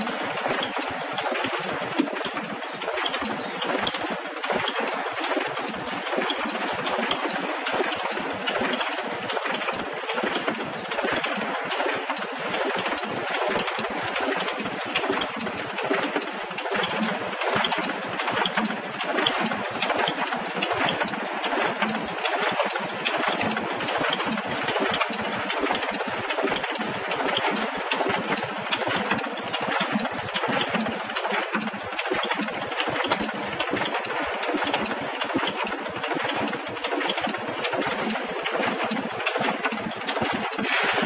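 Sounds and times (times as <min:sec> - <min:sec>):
packing machine clattering: 0:11.9 - 0:41.0.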